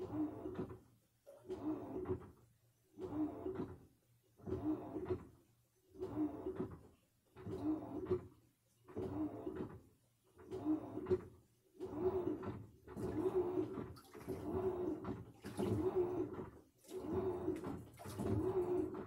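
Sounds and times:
washing machine motor surging: 11.8 - 19.0.

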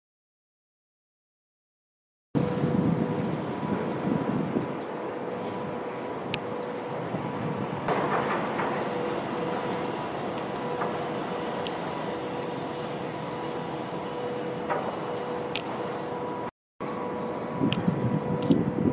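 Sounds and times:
distant traffic: 2.4 - 18.9.

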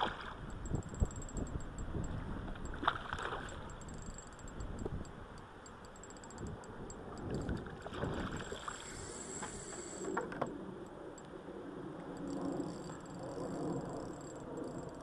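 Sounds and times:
fish splashing in water: 2.8 - 3.6.

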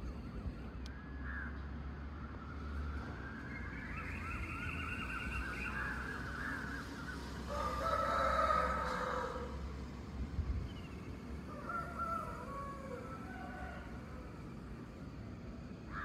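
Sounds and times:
wavering high-pitched call: 3.3 - 7.4
rooster crowing: 7.4 - 9.6, 11.5 - 14.5.

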